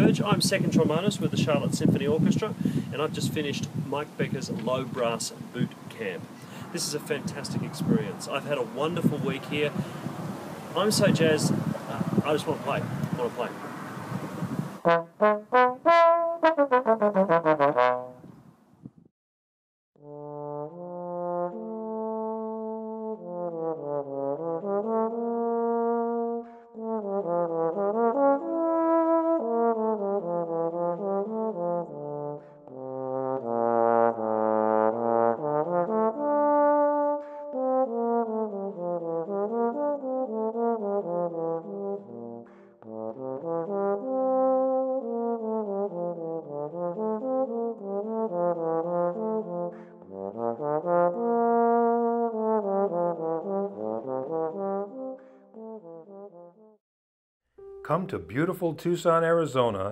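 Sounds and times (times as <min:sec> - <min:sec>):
trombones playing in harmony: 0:14.8 - 0:18.2, 0:20.0 - 0:56.2.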